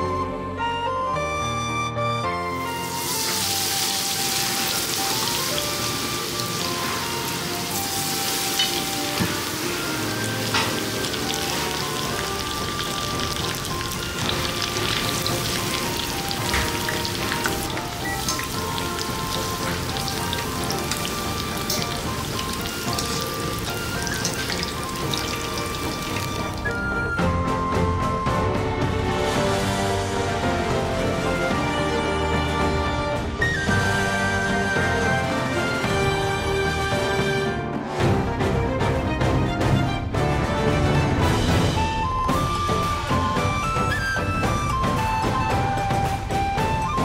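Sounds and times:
background music: 0.0 - 47.0
deep-frying sizzle: 2.5 - 27.2.

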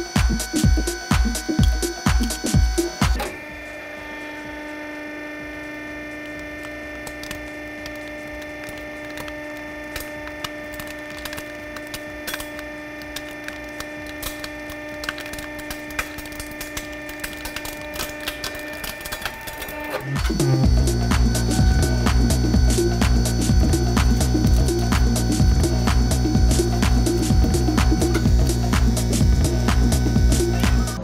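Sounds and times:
hydraulic press humming: 0.0 - 31.0
plastic cracking and creaking: 6.1 - 23.4.

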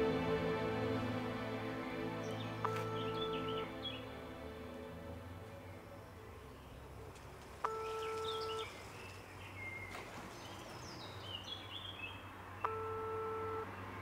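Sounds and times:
birds chirping faintly: 2.1 - 14.0
telephone ringback beeps: 12.7 - 13.7.

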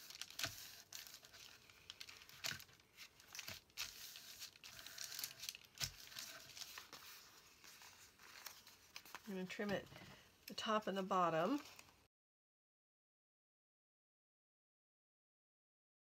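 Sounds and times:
paper rustling and crinkling: 0.0 - 10.2, 11.4 - 12.0.

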